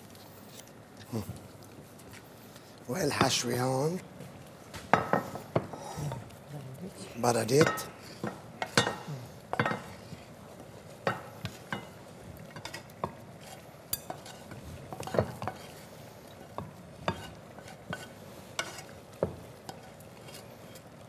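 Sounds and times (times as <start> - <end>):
wooden spatula scraping frying pan: 7.6 - 21.0.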